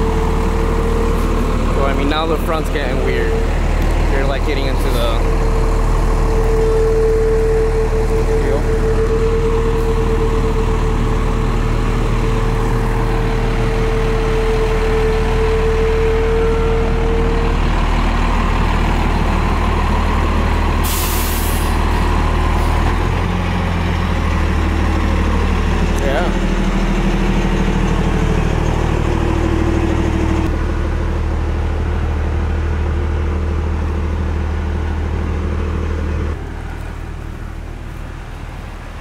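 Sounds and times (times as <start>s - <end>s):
bus diesel engine running: 0.0s - 39.0s
air brakes hiss: 20.8s - 21.8s.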